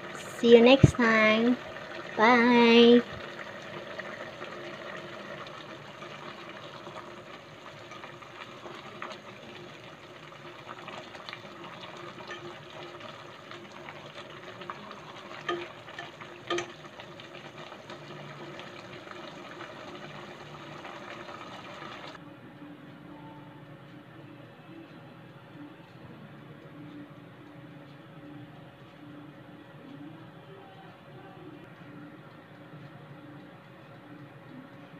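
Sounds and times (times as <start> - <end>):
soup boiling in a pot: 0.0 - 22.2.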